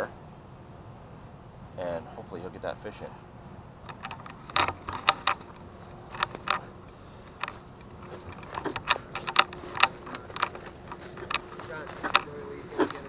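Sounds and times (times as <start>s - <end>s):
brush crackling and rustling: 1.8s - 13.0s
footsteps through undergrowth: 4.2s - 13.0s.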